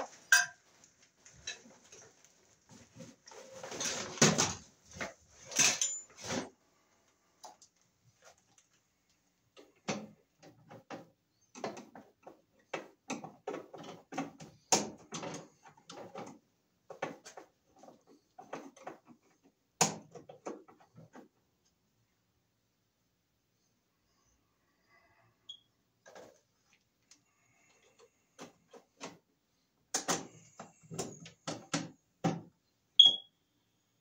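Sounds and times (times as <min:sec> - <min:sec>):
wires and metal parts rattling: 0:00.0 - 0:06.6.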